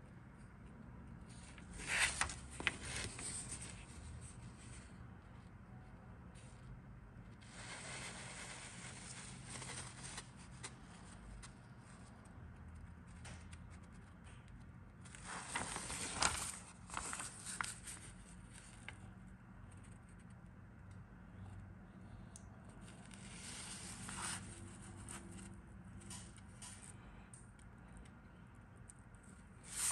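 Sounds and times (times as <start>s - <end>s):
paper rustling and crinkling: 1.3s - 4.9s, 7.4s - 12.0s, 15.0s - 19.0s, 22.9s - 26.8s, 29.6s - 29.9s.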